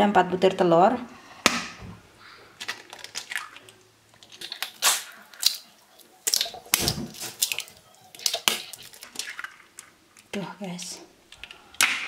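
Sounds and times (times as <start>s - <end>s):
eggshells cracking: 2.5s - 10.4s.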